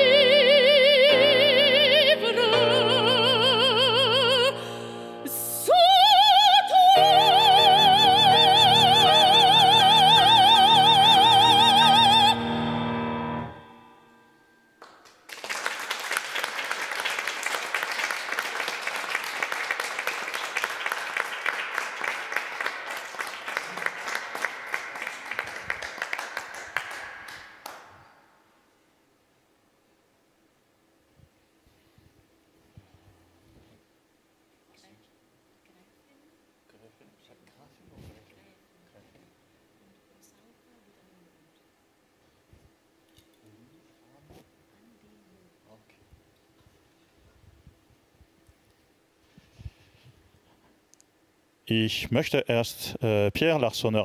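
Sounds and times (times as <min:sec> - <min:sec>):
piano chords: 0:00.0 - 0:05.8, 0:06.7 - 0:14.8
woman singing opera: 0:00.0 - 0:12.6
applause: 0:14.8 - 0:28.3.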